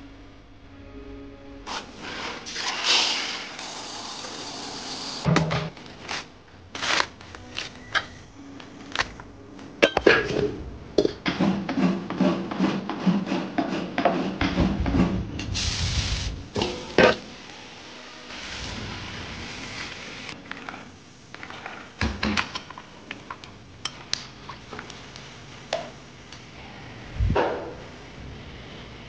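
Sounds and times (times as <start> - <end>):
low hum: 14.6 - 17.4.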